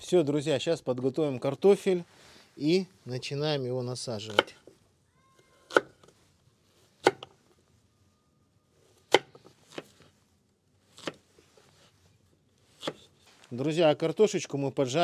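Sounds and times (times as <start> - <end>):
knife chopping on cutting board: 4.3 - 4.6, 12.8 - 13.1.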